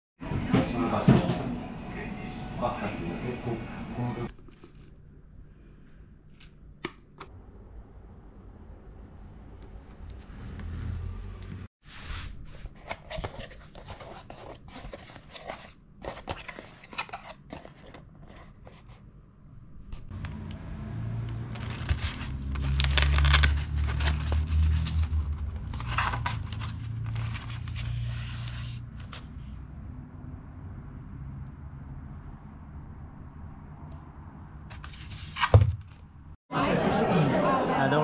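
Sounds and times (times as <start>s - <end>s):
cardboard scraping and tearing: 21.5s - 29.3s.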